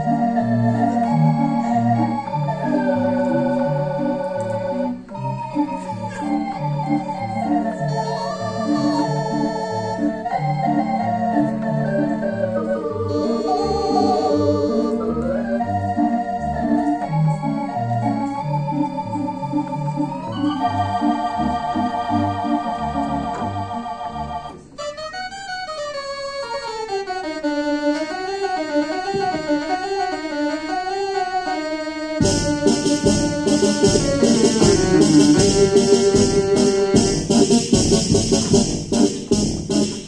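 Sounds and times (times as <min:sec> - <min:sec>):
organ pedal bass line: 0:00.0 - 0:40.0
theatre organ chords: 0:00.0 - 0:40.0
wavering organ melody: 0:00.0 - 0:40.0.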